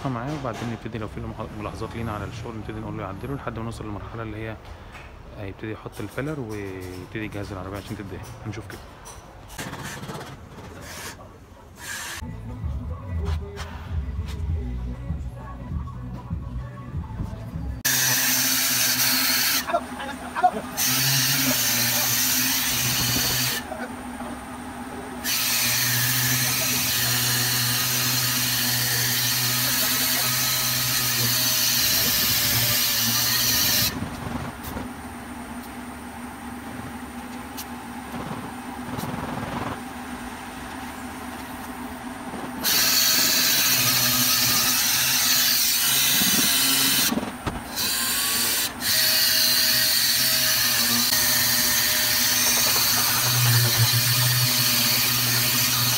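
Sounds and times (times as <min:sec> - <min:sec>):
air-powered orbital sander: 0:17.8 - 0:19.8, 0:20.4 - 0:23.8, 0:25.2 - 0:35.0, 0:42.3 - 0:55.9.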